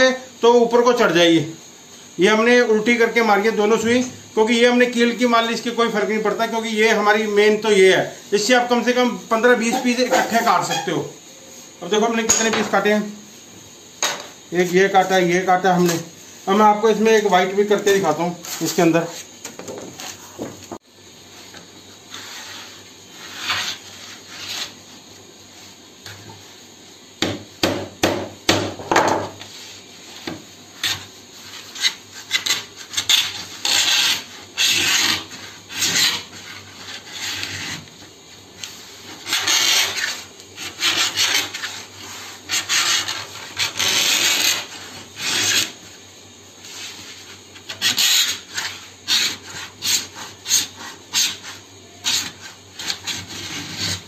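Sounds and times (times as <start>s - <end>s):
needles rasping through laminate: 22.1s - 24.9s, 30.8s - 38.0s, 39.1s - 45.8s, 46.7s - 54.0s.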